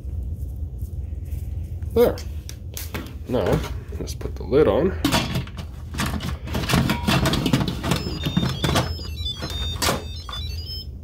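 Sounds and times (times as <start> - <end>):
electronic beeping melody: 7.1 - 11.0.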